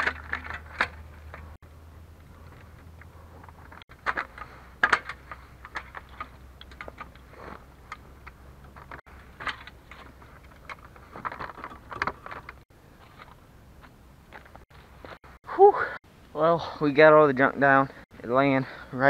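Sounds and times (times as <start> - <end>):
metal ladder stand clicks and rattles: 0.0 - 1.6, 2.4 - 12.6.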